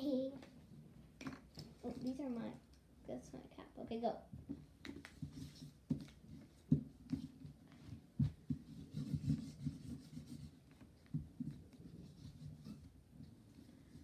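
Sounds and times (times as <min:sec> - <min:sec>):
markers drawing on paper: 0:08.5 - 0:10.8.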